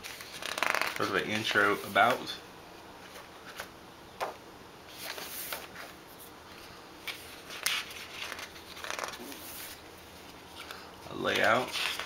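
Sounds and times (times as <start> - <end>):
pages flicking: 0.0 - 1.1, 7.1 - 9.5
magazine pages rustling: 0.0 - 2.1, 4.9 - 12.0.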